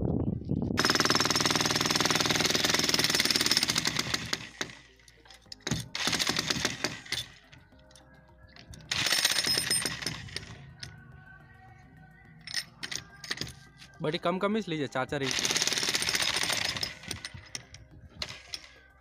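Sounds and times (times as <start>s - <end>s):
demolition breaker hammering concrete: 0.8s - 4.7s, 15.3s - 17.3s.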